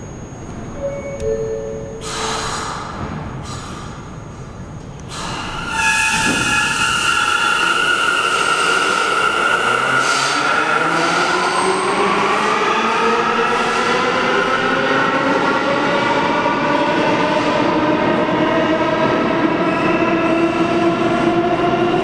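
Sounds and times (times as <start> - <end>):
falling two-note door chime: 0.8 - 2.0.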